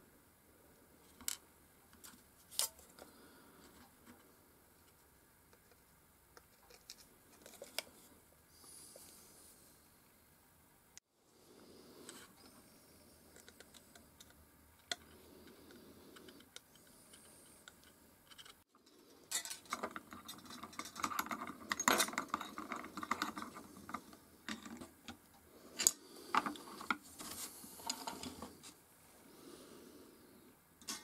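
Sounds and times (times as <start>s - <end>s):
small metal parts clicking and scraping: 13.3s - 24.9s, 25.7s - 28.6s.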